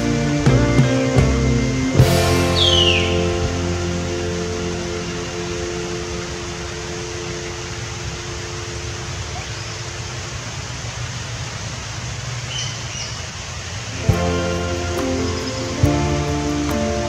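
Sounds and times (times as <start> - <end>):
music: 0.0 - 8.3, 14.0 - 17.0
steady rain hiss: 0.0 - 17.0.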